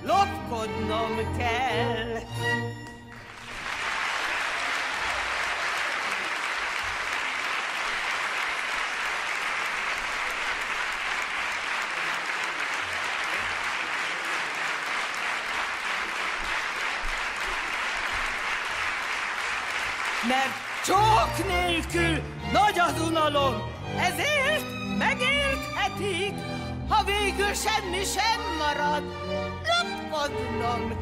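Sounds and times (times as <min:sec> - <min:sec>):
audience applauding: 0:02.8 - 0:22.2.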